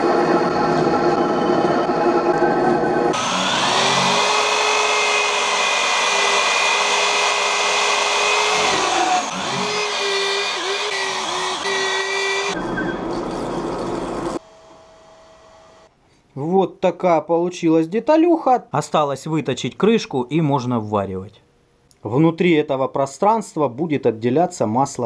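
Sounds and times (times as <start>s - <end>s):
electric drill whining: 3.1s - 12.6s.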